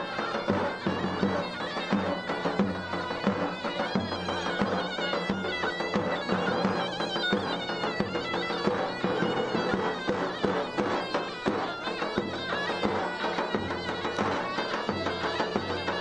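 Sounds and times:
reedy folk wind instrument melody: 0.0 - 16.0.

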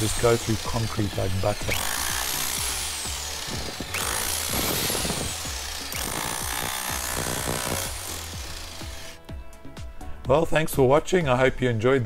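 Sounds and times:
hammer drill on concrete: 0.0 - 9.3
background music: 0.0 - 12.0.

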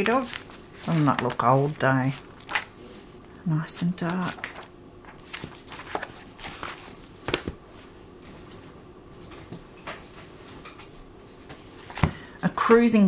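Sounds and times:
book pages rustling: 0.0 - 3.0, 4.0 - 8.0
book closing: 4.1 - 7.6.

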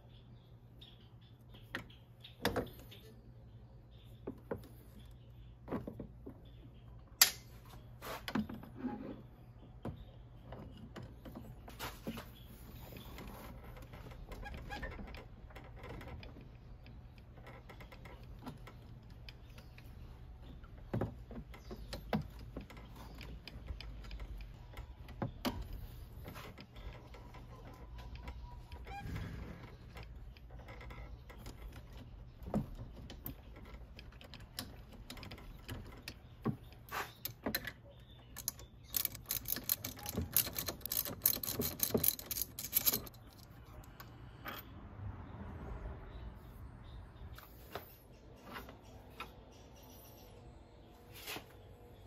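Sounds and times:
metallic clicks and knocks: 29.9 - 44.7
ratchet clicks: 38.4 - 43.5.

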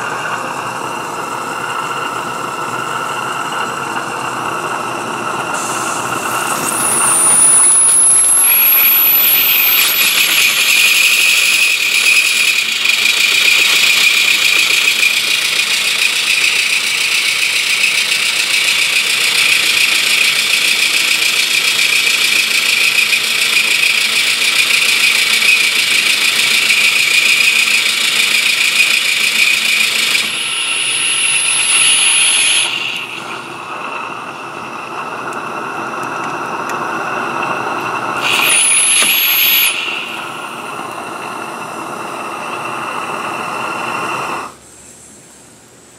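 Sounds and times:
thin rising whistle: 0.0 - 15.1, 28.4 - 44.6
steam exhaust hiss: 0.0 - 45.6.

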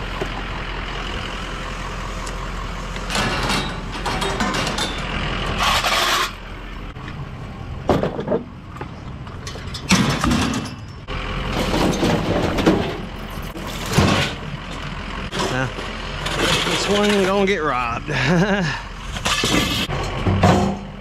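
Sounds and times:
truck engine and road noise: 0.0 - 21.0.

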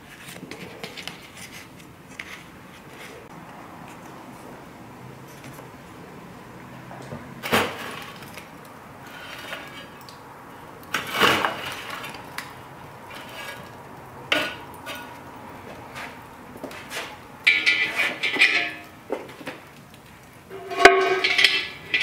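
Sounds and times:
shovel scraping coals: 7.4 - 10.0, 10.9 - 12.5, 13.1 - 15.2, 15.8 - 19.0, 20.5 - 22.0
shovel clanking on hearth: 17.5 - 18.9, 20.5 - 22.0.

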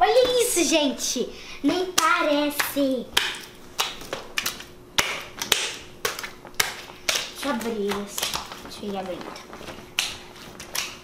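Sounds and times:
child's voice: 0.0 - 3.2, 7.4 - 9.4
wet slaps of slime: 2.0 - 8.6, 9.9 - 11.0.

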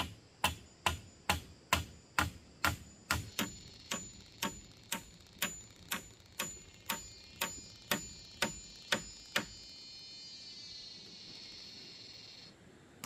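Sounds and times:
tool striking bamboo: 0.0 - 9.7
steady high buzz: 0.0 - 12.6.

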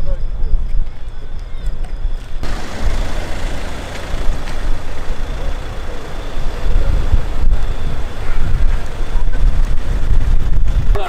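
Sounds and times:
cars rumbling in slow convoy: 2.2 - 11.0.

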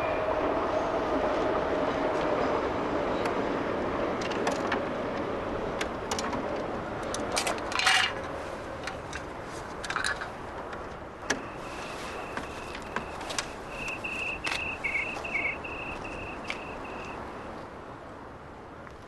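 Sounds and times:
scattered clicks: 12.4 - 17.2.

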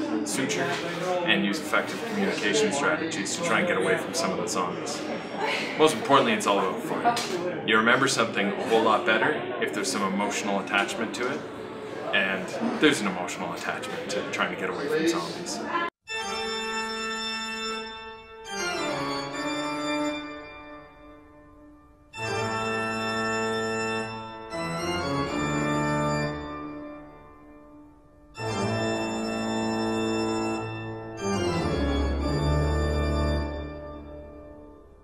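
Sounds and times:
slow organ chords: 16.1 - 35.0.

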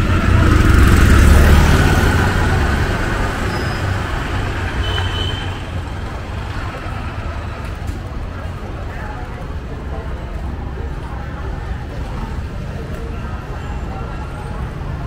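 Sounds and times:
vehicle passing by: 0.0 - 8.3
street noise: 0.0 - 15.0.

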